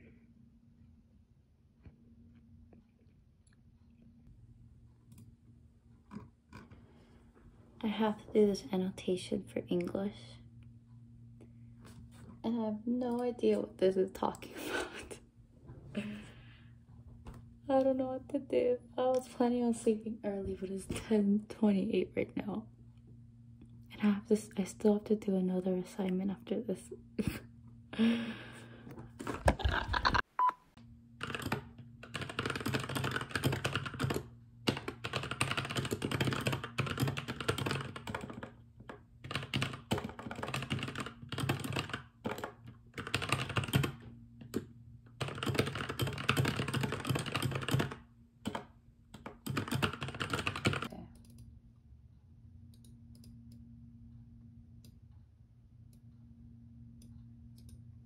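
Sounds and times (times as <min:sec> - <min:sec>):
faint steady hum: 0:00.0 - 0:58.0
mechanical keyboard typing: 0:31.2 - 0:50.9.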